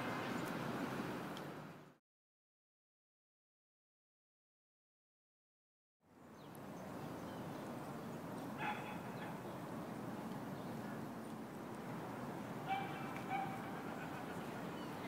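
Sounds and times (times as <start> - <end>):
outdoor background hiss: 0.0 - 2.0, 6.1 - 15.0
dog yipping: 12.7 - 14.3.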